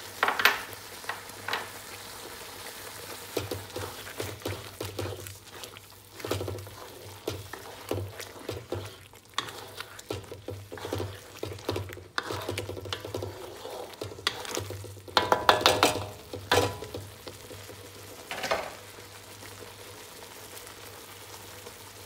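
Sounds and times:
sauce sizzling: 0:00.0 - 0:22.0
spatula scraping a pan: 0:03.2 - 0:17.5.

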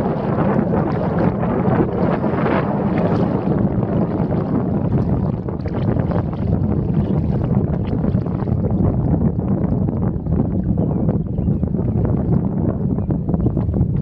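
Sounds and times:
river water splashing: 0:00.0 - 0:06.6
wind rumble on microphone: 0:00.0 - 0:14.0.

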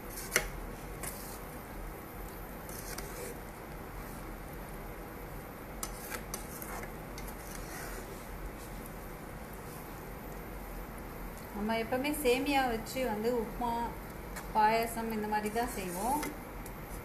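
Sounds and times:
spatula scraping sticky food: 0:00.0 - 0:01.6, 0:02.6 - 0:04.4, 0:05.8 - 0:08.5.

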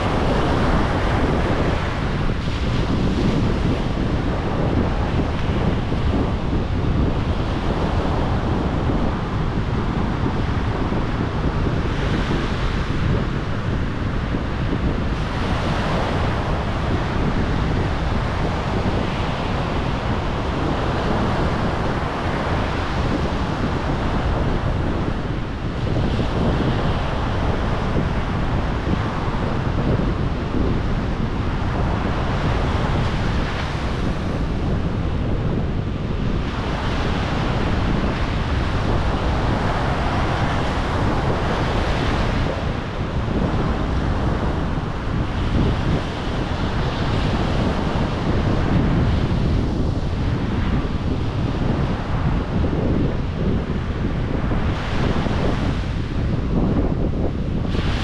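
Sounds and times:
low surf rumble: 0:00.0 - 0:58.0
waves breaking on shore: 0:00.0 - 0:58.0.

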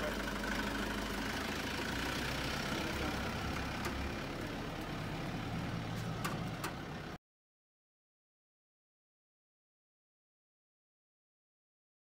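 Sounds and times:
pickup truck engine running: 0:00.0 - 0:07.2.

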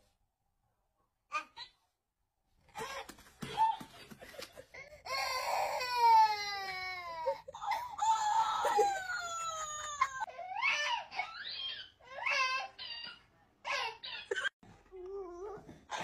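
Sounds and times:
babies crying: 0:04.9 - 0:14.0.

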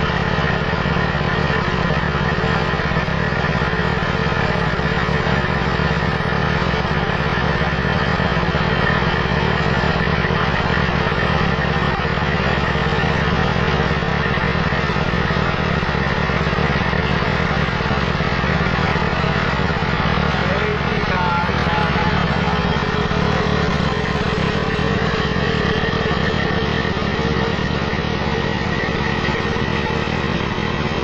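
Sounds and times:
motorcycle engine running: 0:00.0 - 0:31.0.

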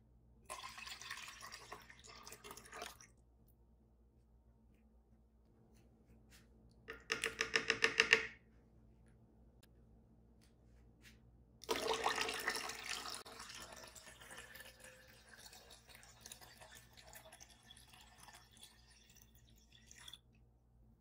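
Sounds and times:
water pouring into a pitcher: 0:00.5 - 0:03.2, 0:11.6 - 0:20.3.

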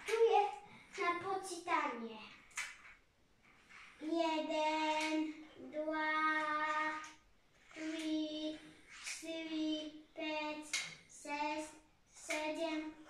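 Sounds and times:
child singing held notes: 0:07.8 - 0:13.0.

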